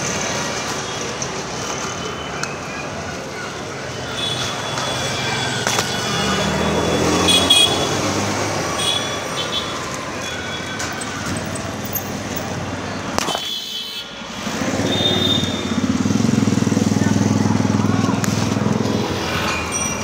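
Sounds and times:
road traffic noise: 0.0 - 20.0
motor vehicle passing: 6.1 - 12.8, 14.2 - 20.0.

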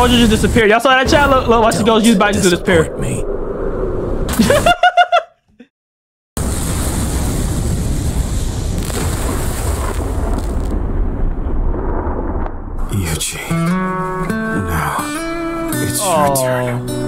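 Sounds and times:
explosion-like blast with rumble: 0.0 - 4.7, 6.4 - 13.0.

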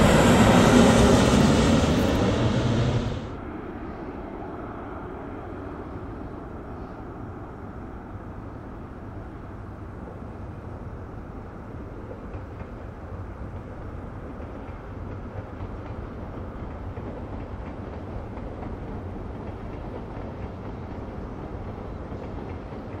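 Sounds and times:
jet engines low rumble: 0.0 - 23.0.

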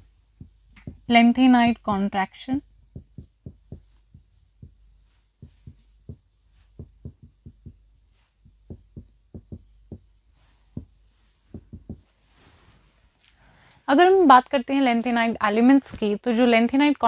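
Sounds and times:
marker swishing on whiteboard: 0.0 - 13.0
marker tapping on whiteboard: 0.2 - 1.2, 2.8 - 12.1.

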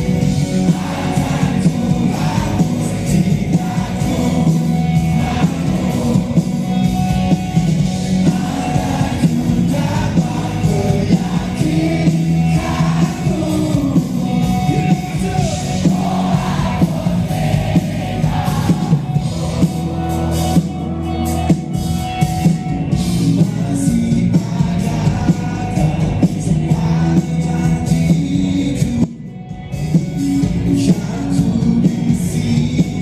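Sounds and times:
steady drum beat: 0.0 - 29.0
rock band playing live: 0.0 - 33.0
man singing: 0.4 - 6.7, 8.2 - 16.9, 23.1 - 29.2, 30.5 - 33.0.

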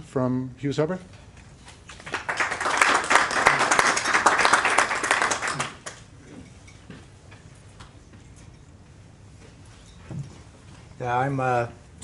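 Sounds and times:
audience applauding: 2.0 - 6.0.

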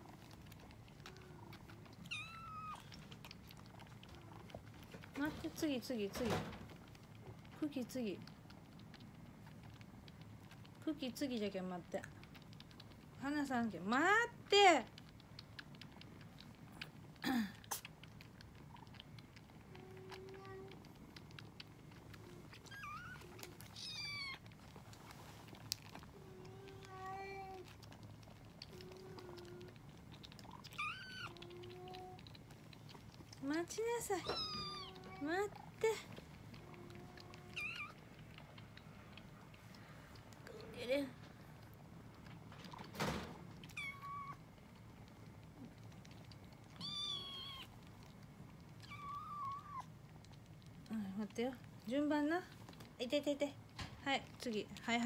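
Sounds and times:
kittens meowing: 1.1 - 2.9, 22.2 - 24.4, 30.5 - 32.2, 34.2 - 35.3, 36.6 - 38.0, 43.7 - 44.4, 46.7 - 47.8, 48.8 - 49.9
kittens mewing: 34.1 - 38.8.

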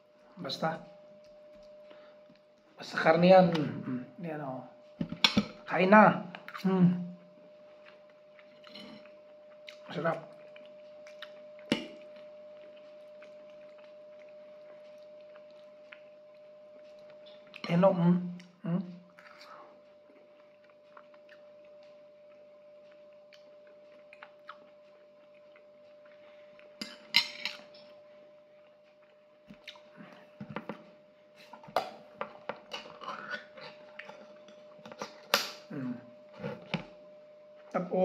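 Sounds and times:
faint steady hum: 0.0 - 38.0
chewing: 7.7 - 17.6, 18.4 - 28.0
fork clinking on ceramic plates: 26.8 - 27.7.

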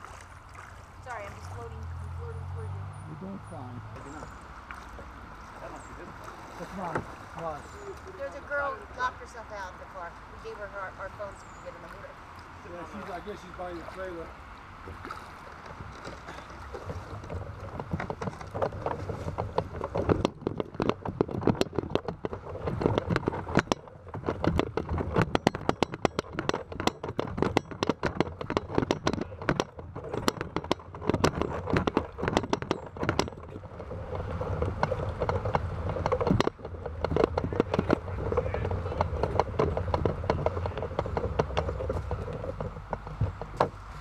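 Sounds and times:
hull rumbling on asphalt: 0.0 - 44.0
water around hull: 0.0 - 44.0
kayak hull scraping on concrete: 14.9 - 44.0.

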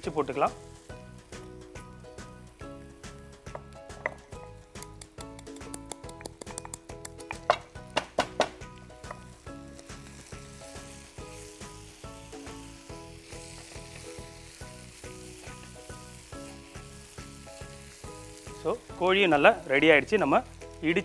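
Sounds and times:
chicken sizzling in skillet: 0.0 - 5.9, 7.2 - 21.0
background music with steady beat: 0.0 - 21.0
pestle knocking in stone mortar: 3.5 - 9.2.

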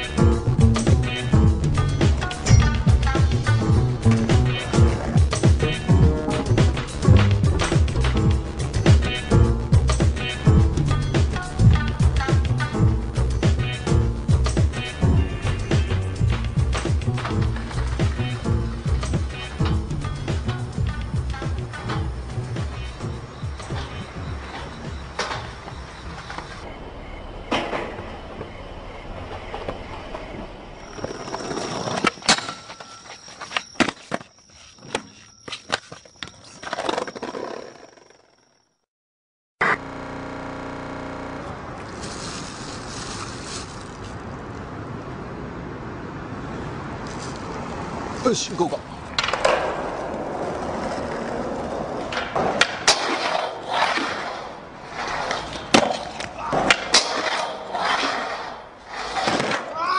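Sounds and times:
skateboard rolling on pavement: 0.0 - 38.7, 39.7 - 59.8
skateboard clacks and knocks: 49.1 - 59.9.

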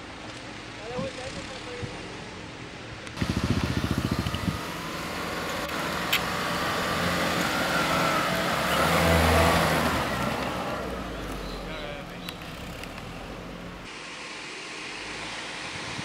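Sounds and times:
car engine running under load: 0.0 - 16.0
tyres on loose sand and dirt: 3.0 - 16.0
rapid low fluttering: 3.2 - 4.9.

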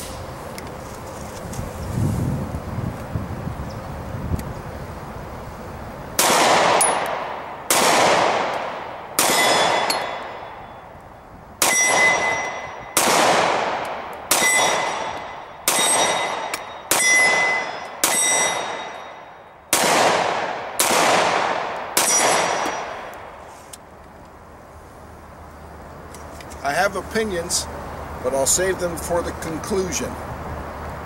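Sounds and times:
pistol shots with echo: 6.2 - 10.7, 11.6 - 23.1
high ringing tone: 9.4 - 10.9, 11.7 - 13.0, 14.4 - 19.7.

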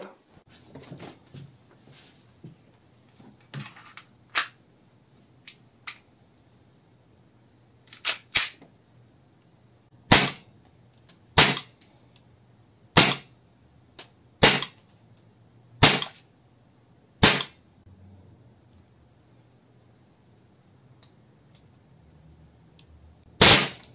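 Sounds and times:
airsoft pistol shots: 10.1 - 10.5, 11.4 - 11.7, 13.0 - 13.3, 14.4 - 14.8, 15.8 - 16.2, 17.2 - 17.6, 23.4 - 23.9.

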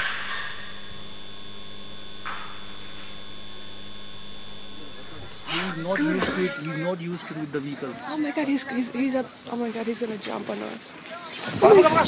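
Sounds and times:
loud noise: 0.0 - 7.0
electrical mains hum: 0.0 - 12.0
raised voice: 4.8 - 8.9.

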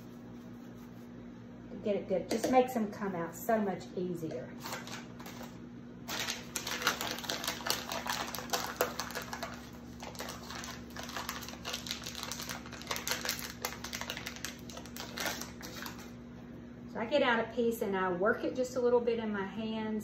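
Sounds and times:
plastic wrapping crinkling: 4.6 - 16.2.

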